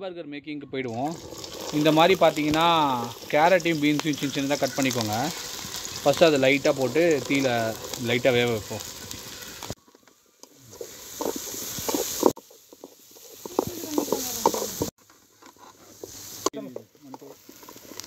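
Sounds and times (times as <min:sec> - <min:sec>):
vegetables sizzling in a pan: 0:00.9 - 0:18.0
spatula scraping a pan: 0:10.6 - 0:18.0.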